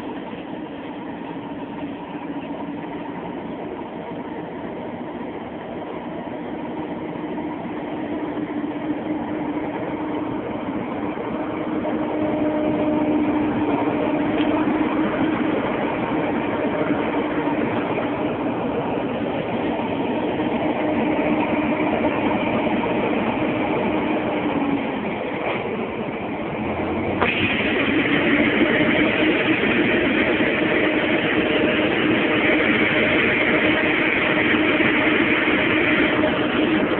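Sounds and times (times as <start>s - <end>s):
combine engine and auger drone: 0.0s - 36.9s
grain pouring hiss: 27.2s - 36.8s.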